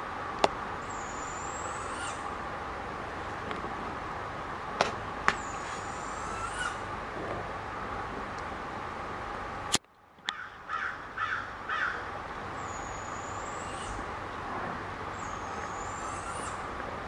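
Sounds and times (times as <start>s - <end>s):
crow cawing: 10.3s - 12.0s.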